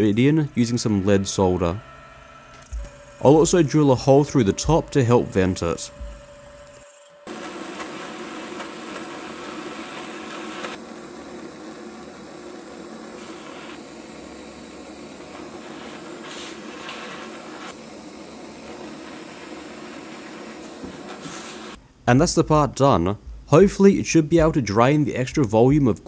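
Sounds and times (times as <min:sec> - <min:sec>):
blowtorch flame hissing: 0:07.3 - 0:21.8.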